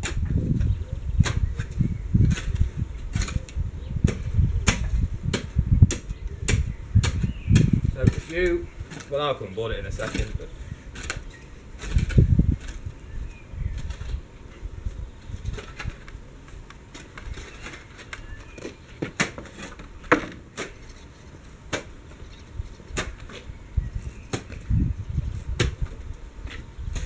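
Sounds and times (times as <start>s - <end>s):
spade scraping stony soil: 7.0s - 24.6s.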